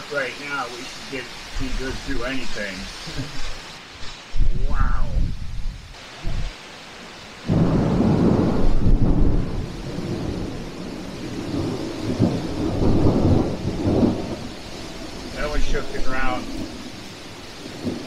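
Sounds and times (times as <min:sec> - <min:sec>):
heavy rain: 0:00.0 - 0:18.0
thunder rumbling: 0:04.4 - 0:06.5, 0:07.4 - 0:18.0.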